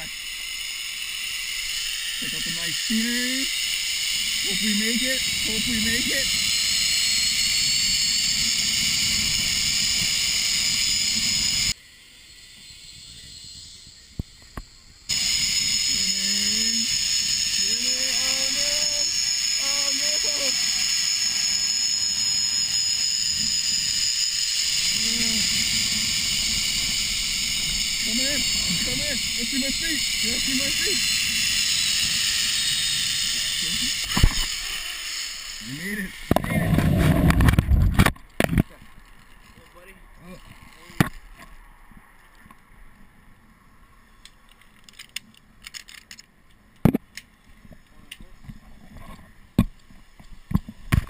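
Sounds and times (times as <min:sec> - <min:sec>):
zip-line pulleys hissing on cable: 0:00.0 - 0:37.3.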